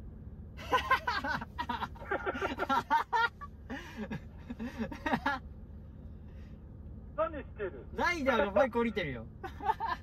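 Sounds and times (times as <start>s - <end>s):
low steady hum: 0.0s - 10.0s
man laughing and chattering: 0.6s - 5.5s.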